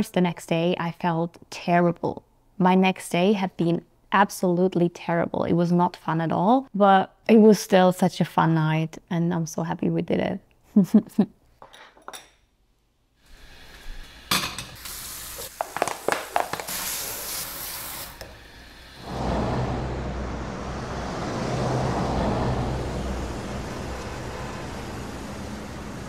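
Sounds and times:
city street traffic hum: 18.6s - 26.0s.

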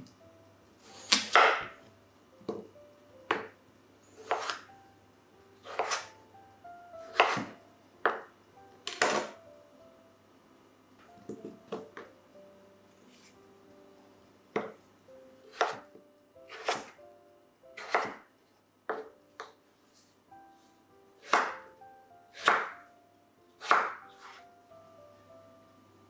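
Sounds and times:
knife slicing potatoes on board: 0.8s - 1.7s, 4.2s - 4.7s, 5.6s - 6.1s, 7.1s - 8.2s, 8.9s - 9.4s, 15.5s - 15.8s, 16.5s - 17.0s, 17.8s - 18.2s, 21.2s - 21.6s, 22.3s - 22.8s, 23.6s - 24.4s.

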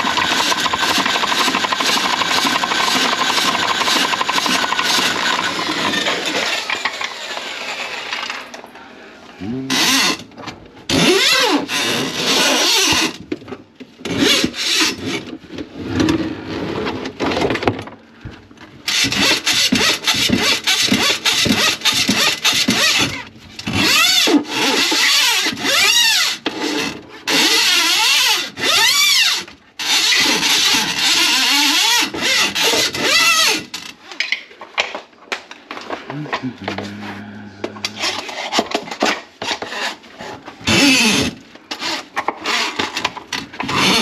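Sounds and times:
power tool running in bursts: 0.0s - 8.4s
squealing scraping: 36.5s - 38.6s.

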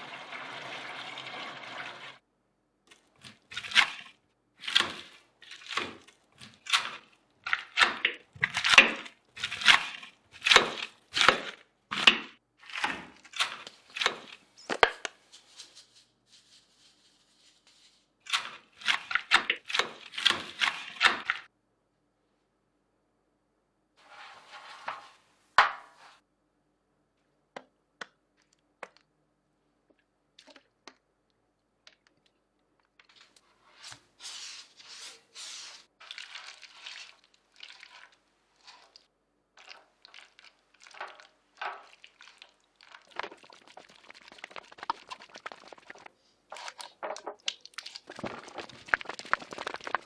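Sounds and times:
potato mixture crunching and squishing: 2.9s - 15.6s, 17.4s - 21.5s, 35.9s - 50.0s.

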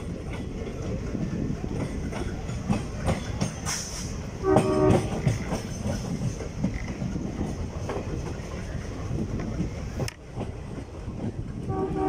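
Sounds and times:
train rumbling on track: 0.0s - 12.0s
train horn: 4.4s - 5.3s, 11.6s - 12.0s.

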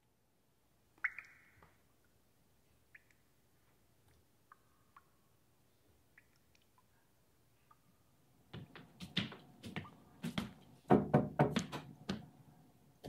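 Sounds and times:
irregular knocks and thumps: 8.5s - 12.3s.

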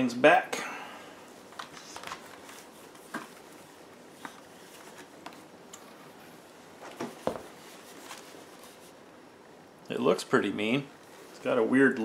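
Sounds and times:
cloth rustling: 1.4s - 9.2s.

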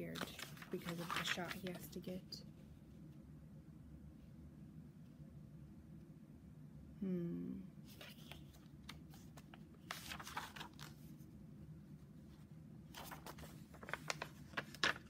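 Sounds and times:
book pages flipping: 0.0s - 2.0s, 7.9s - 11.3s, 12.9s - 15.0s.

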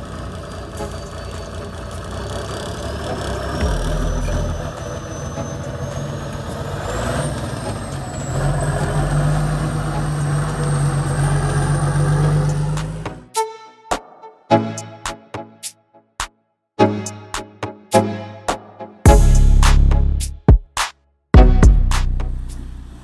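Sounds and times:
truck engine under load: 0.0s - 13.4s, 22.0s - 23.0s.

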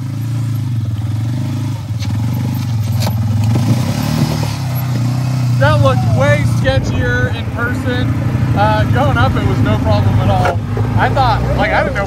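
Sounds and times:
atv engine running: 0.0s - 12.0s
sharp clatters over rough ground: 1.8s - 5.4s, 10.3s - 11.1s.

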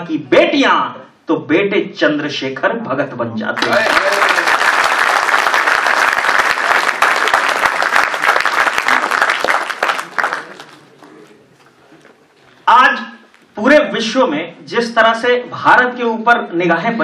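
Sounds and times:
audience applauding: 3.6s - 11.4s.

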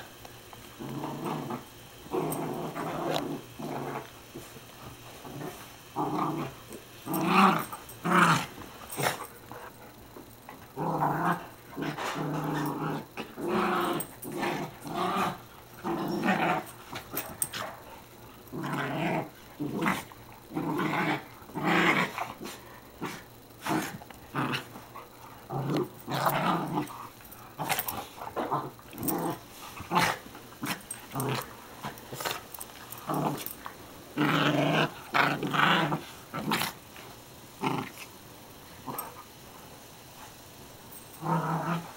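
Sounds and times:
dogs growling: 0.8s - 36.8s, 37.6s - 38.1s, 41.2s - 41.9s.

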